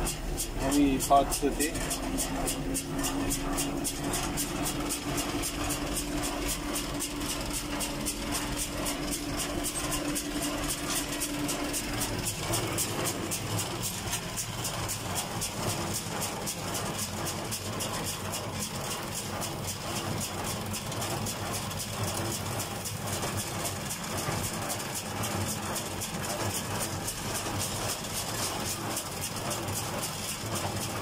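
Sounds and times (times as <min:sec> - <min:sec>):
steady whine: 0:00.0 - 0:19.4
tractor diesel engine running: 0:00.0 - 0:31.0.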